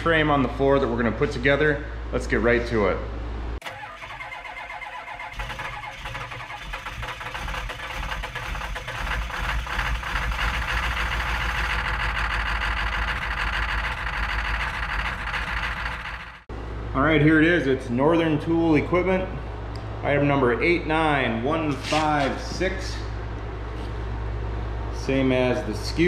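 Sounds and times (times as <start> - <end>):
engine running: 3.6 - 16.9.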